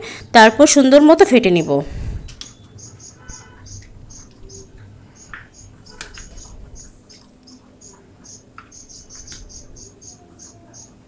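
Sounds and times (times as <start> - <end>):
high repeating chirping: 2.3 - 11.0.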